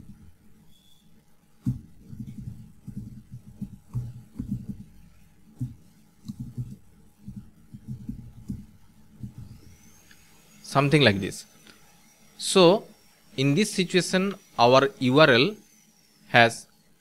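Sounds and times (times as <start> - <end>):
computer keyboard typing: 1.6 - 9.7.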